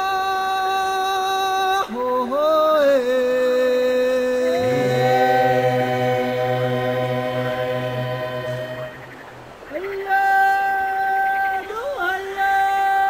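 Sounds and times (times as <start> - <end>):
lower voice singing: 1.8 - 13.0
voices singing in harmony: 4.0 - 13.0.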